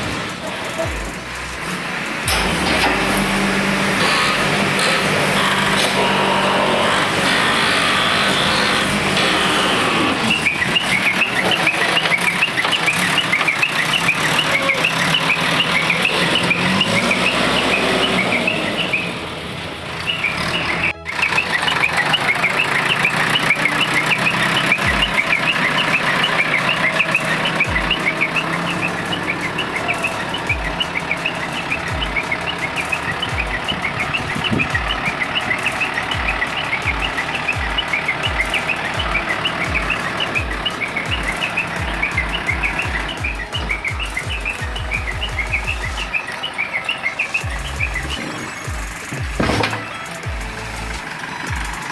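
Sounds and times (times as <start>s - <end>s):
diesel machinery running: 0.0s - 51.9s.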